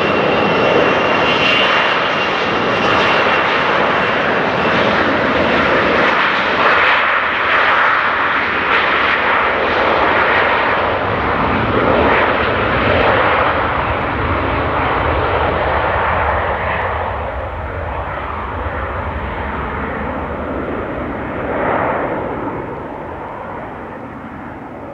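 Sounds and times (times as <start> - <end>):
jet engines roaring: 0.0 - 24.9.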